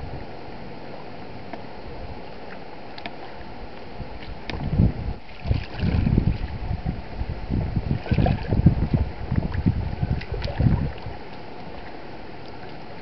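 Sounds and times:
water lapping over rocks: 2.4s - 6.9s, 7.8s - 13.0s
low rumbling surges: 4.0s - 11.3s.

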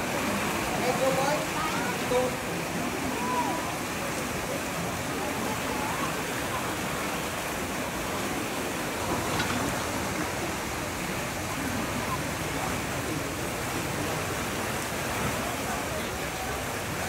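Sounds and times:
turbulent water rushing through culvert: 0.0s - 17.0s.

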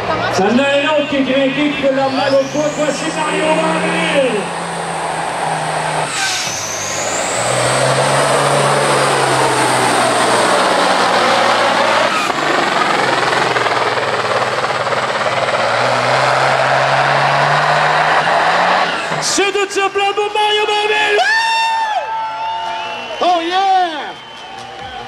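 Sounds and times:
diesel truck engine under load: 0.0s - 20.9s
high engine whistle: 0.5s - 10.1s, 21.0s - 25.0s.

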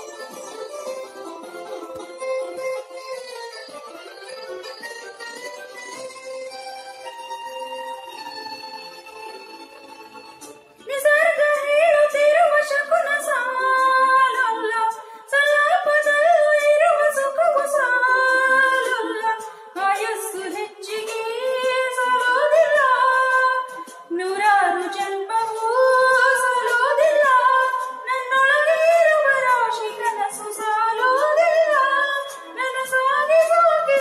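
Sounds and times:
woman singing into microphone: 10.8s - 34.0s.

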